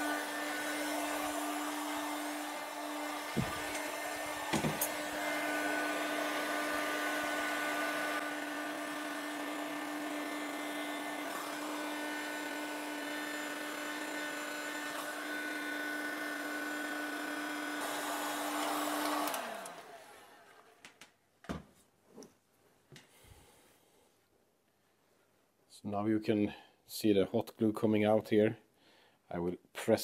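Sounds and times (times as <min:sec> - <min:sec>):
heat gun fan and hot air hiss: 0:00.0 - 0:20.3.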